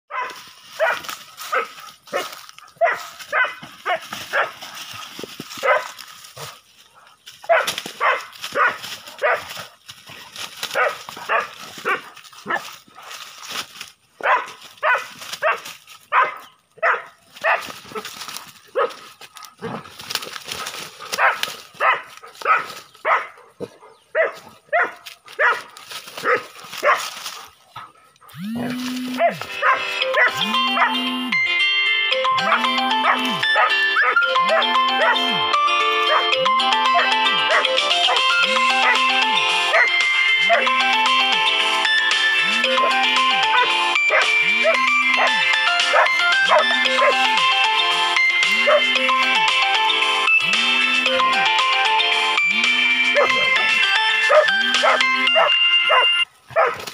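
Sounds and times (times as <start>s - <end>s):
dogs barking: 0.1s - 4.9s, 5.5s - 13.1s, 14.2s - 19.8s, 20.5s - 31.3s, 32.3s - 49.7s, 52.4s - 56.9s
music: 29.4s - 56.2s.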